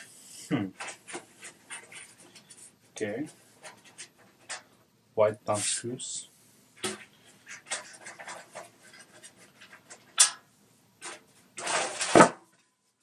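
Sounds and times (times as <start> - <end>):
small clicks and scrapes: 0.7 - 4.8, 6.8 - 12.8.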